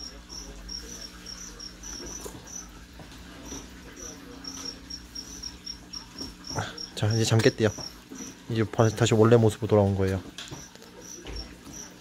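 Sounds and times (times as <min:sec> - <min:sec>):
crickets chirping: 0:00.0 - 0:02.8, 0:03.4 - 0:09.0, 0:10.5 - 0:12.0
steady low hum: 0:00.0 - 0:09.0.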